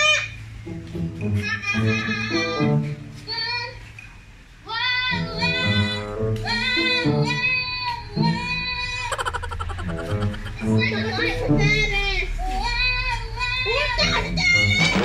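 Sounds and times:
background music: 0:00.4 - 0:03.3, 0:05.1 - 0:12.4
child singing: 0:01.4 - 0:02.7, 0:04.7 - 0:09.0, 0:10.5 - 0:14.9.

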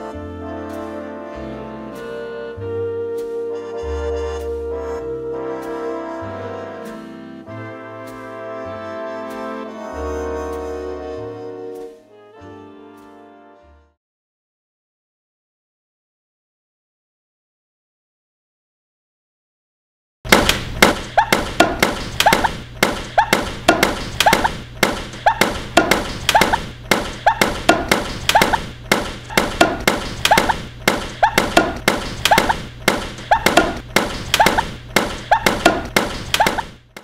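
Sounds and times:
rapid sharp thuds: 0:20.3 - 0:37.0.

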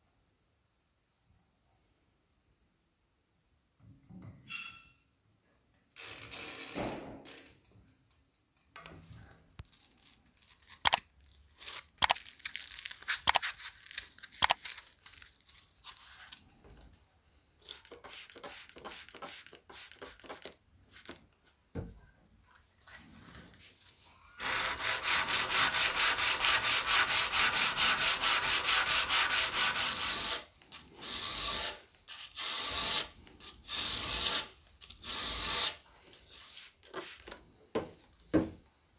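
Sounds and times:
sanding steel blade: 0:24.4 - 0:34.5.

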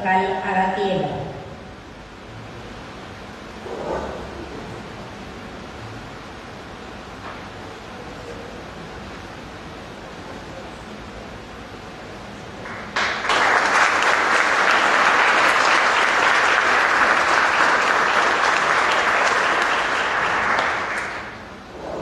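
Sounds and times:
audience applauding: 0:12.6 - 0:21.5.

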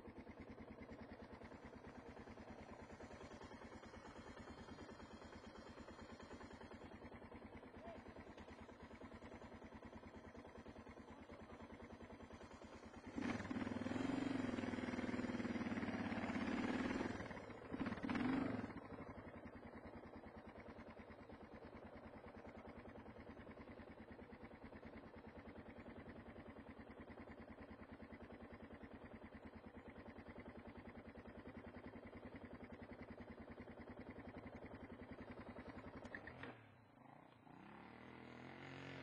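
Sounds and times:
motorcycle engine running: 0:00.0 - 0:39.0.

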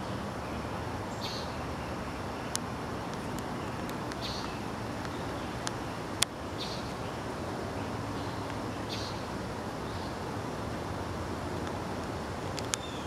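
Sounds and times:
sharp clicks: 0:12.5 - 0:12.9.

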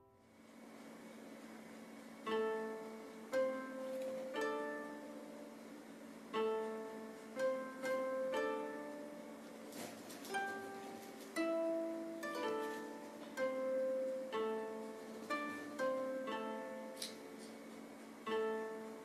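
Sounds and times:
plucked string notes: 0:02.3 - 0:05.4, 0:06.3 - 0:17.5.

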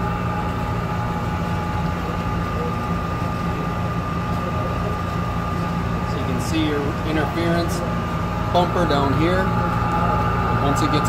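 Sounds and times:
machine mechanical hum: 0:00.0 - 0:11.0
thin high whine: 0:00.0 - 0:11.0.

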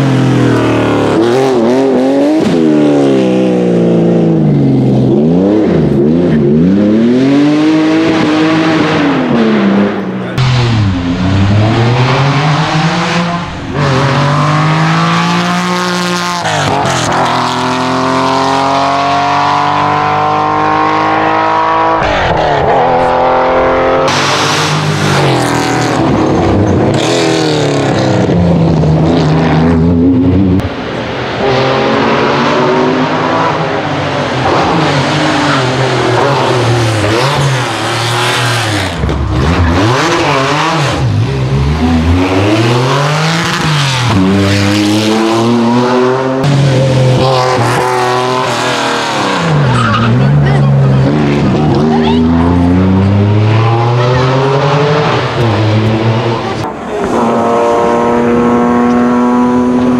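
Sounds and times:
rally car engines revving: 0:00.0 - 0:59.9.

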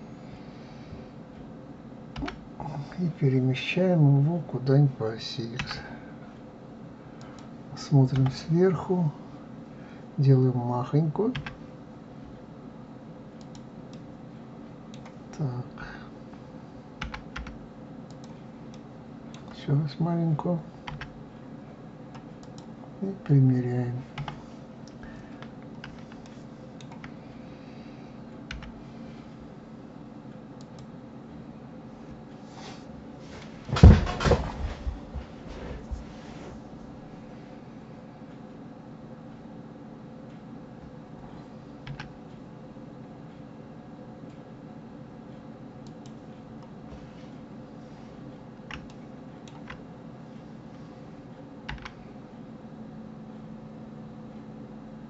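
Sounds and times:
steady low hum: 0:00.0 - 0:55.0
keyboard and mouse clicks: 0:02.2 - 0:02.4, 0:13.4 - 0:14.1, 0:17.0 - 0:18.8, 0:20.9 - 0:21.1, 0:24.2 - 0:27.2, 0:28.5 - 0:28.8, 0:41.8 - 0:42.1, 0:48.7 - 0:49.8, 0:51.7 - 0:52.0.

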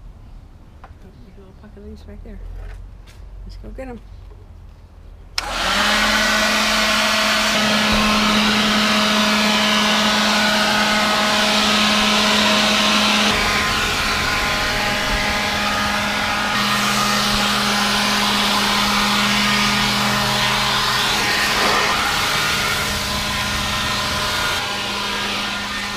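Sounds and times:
leaf blower running: 0:05.4 - 0:25.9.

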